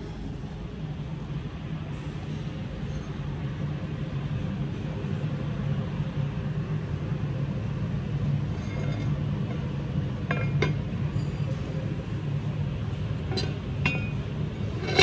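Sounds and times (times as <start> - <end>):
ventilation hum: 0.0 - 15.0
cast-iron lid clinking: 10.2 - 10.9, 13.3 - 15.0.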